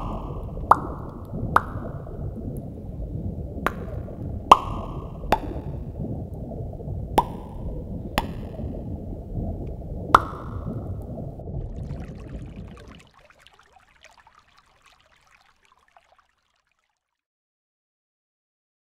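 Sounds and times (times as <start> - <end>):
water drops plopping: 0.0 - 2.2, 3.7 - 5.9, 7.2 - 8.8, 9.6 - 17.0
low rush of water: 0.0 - 17.0
faint crackle: 0.0 - 17.2.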